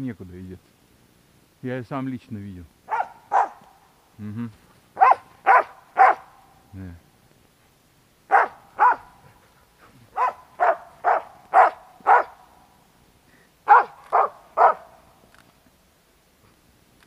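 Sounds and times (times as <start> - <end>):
dog barking: 2.9 - 3.6, 5.0 - 6.3, 8.3 - 9.2, 10.1 - 12.4, 13.7 - 15.0.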